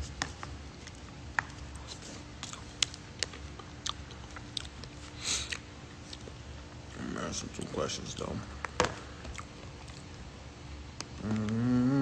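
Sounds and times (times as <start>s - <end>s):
chewing: 0.2s - 6.4s, 9.2s - 10.2s.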